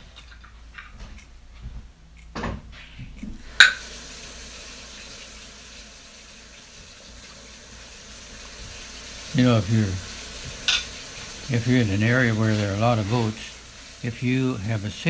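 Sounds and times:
steady hiss of water or frying: 3.4 - 15.0.

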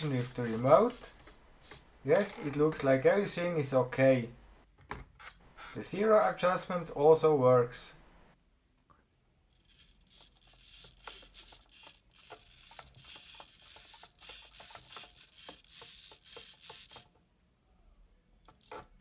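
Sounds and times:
servos whirring and clicking: 9.6 - 17.1.

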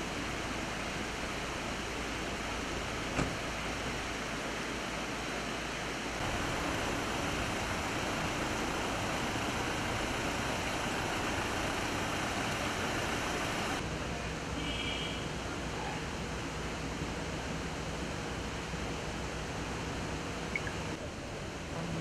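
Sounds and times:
heavy rain: 0.0 - 13.8
running water: 6.2 - 13.8.

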